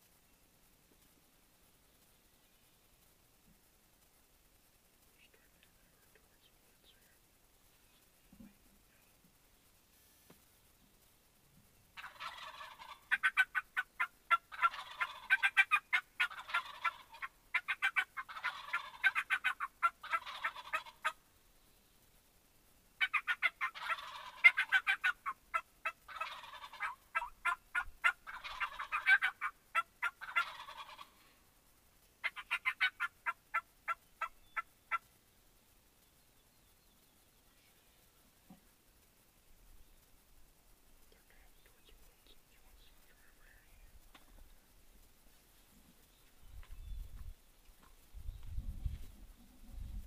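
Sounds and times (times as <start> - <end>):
turkeys gobbling: 12.0 - 21.2, 23.0 - 31.4, 32.2 - 35.0.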